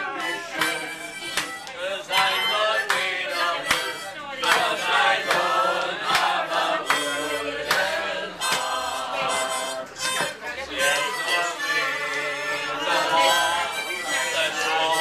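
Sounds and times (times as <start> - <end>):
harmonica playing a tune: 0.0 - 5.8, 6.4 - 15.0
people singing along loudly: 0.0 - 15.0
hand claps keeping time: 0.1 - 10.4.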